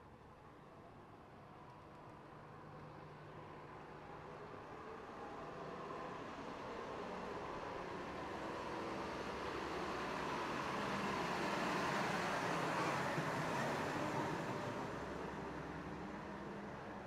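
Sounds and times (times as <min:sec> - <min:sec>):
car passing by: 0:07.8 - 0:16.4.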